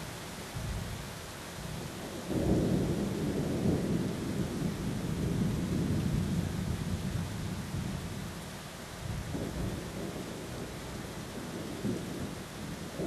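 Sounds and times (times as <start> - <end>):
steady rain: 0.0 - 13.0
thunder rumbling: 2.0 - 8.0, 9.2 - 13.0.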